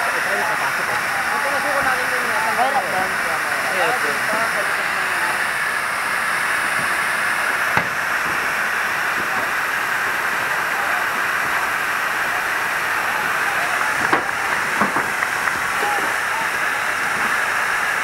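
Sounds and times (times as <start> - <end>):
fire hose spraying water: 0.0 - 18.0.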